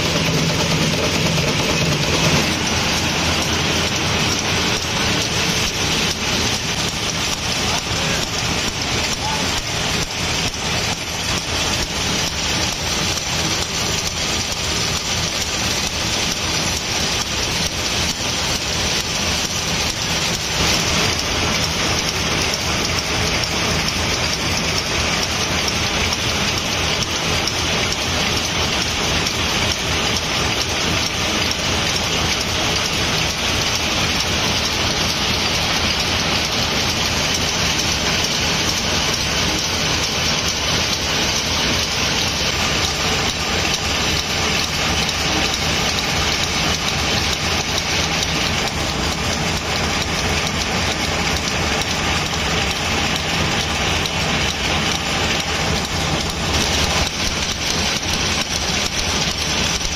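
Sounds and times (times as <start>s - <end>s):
low machine hum: 0.0s - 26.8s.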